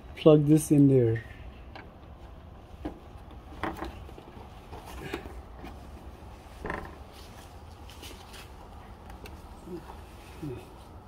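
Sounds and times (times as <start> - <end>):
plastic deflector creaking and clicking: 2.8 - 4.4.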